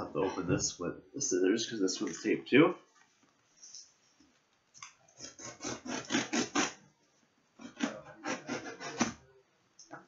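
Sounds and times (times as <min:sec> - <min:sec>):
scissors cutting packing tape: 0:05.2 - 0:06.8.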